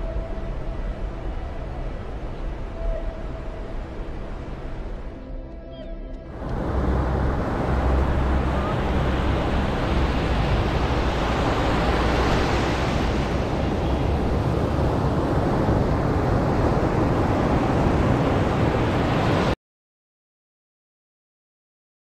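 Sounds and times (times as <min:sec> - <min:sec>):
wind rumbling on microphone: 0:06.3 - 0:19.6
surf washing on sandy shore: 0:06.5 - 0:19.6.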